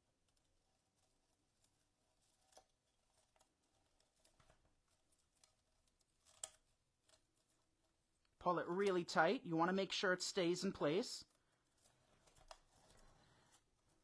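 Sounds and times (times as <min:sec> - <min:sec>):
dry vines scratching and crackling: 0:00.6 - 0:07.7.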